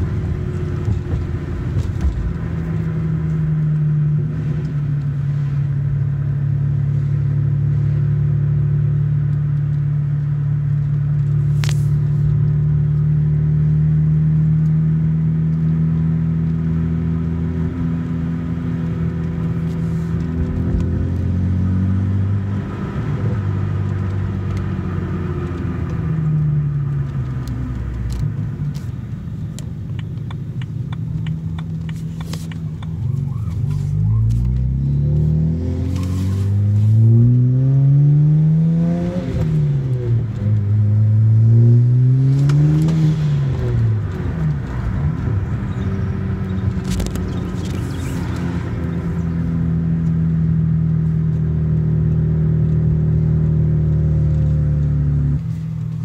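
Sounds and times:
car engine revving from cabin: 0:12.2 - 0:28.6, 0:30.5 - 0:55.8.

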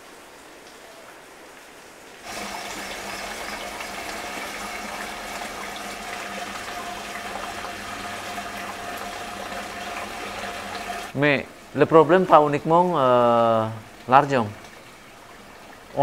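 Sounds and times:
water rushing from pipe: 0:02.2 - 0:11.2.

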